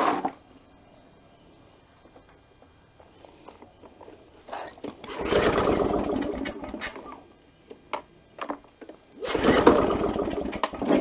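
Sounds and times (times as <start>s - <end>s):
mower engine pull-started: 4.9s - 7.1s, 9.2s - 11.0s.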